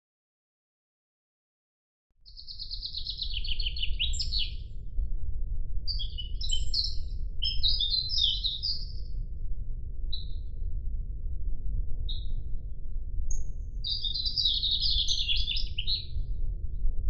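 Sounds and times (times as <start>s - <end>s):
songbird singing: 2.3s - 4.8s, 5.9s - 9.2s, 10.1s - 10.5s, 12.1s - 12.4s, 13.3s - 16.3s
low rumble: 2.3s - 17.0s.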